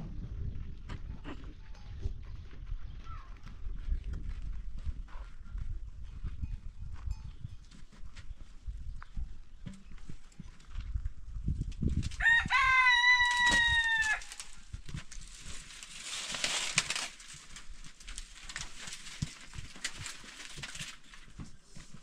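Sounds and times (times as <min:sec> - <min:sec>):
rustle: 0:11.8 - 0:22.0
rooster crowing: 0:12.2 - 0:14.5.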